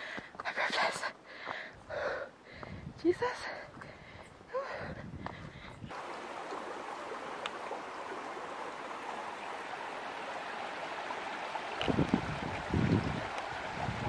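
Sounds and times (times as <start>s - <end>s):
stream rushing over stones: 5.9s - 14.0s.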